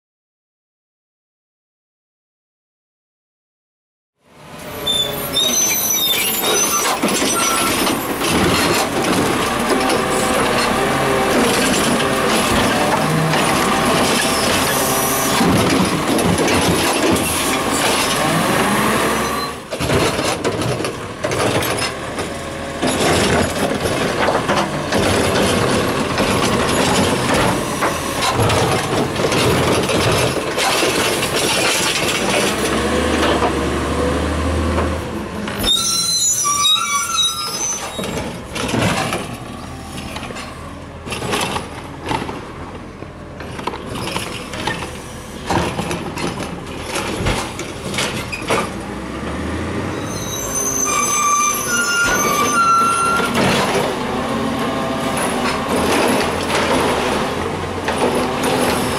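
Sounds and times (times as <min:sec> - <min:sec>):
brakes squealing: 0:04.6 - 0:20.5, 0:35.4 - 0:40.6, 0:49.8 - 0:53.9.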